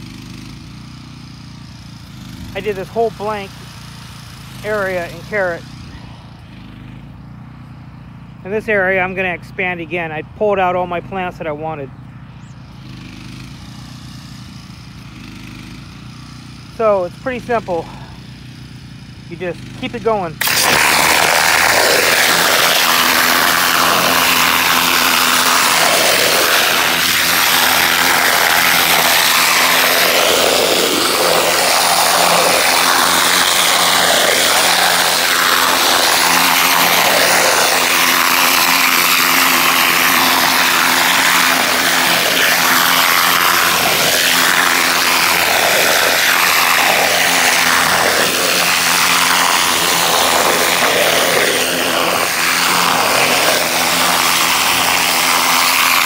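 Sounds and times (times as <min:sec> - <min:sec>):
pressure washer motor hum: 0:00.0 - 0:56.0
water jet hissing on soil: 0:20.4 - 0:56.0.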